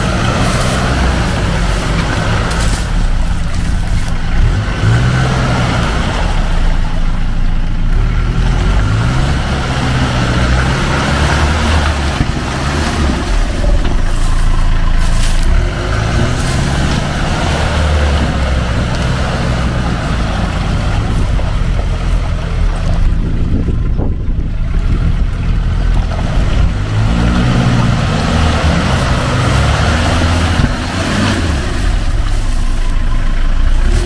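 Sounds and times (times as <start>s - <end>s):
engine revving under load: 0.0s - 34.0s
tyres churning in mud and water: 0.0s - 34.0s.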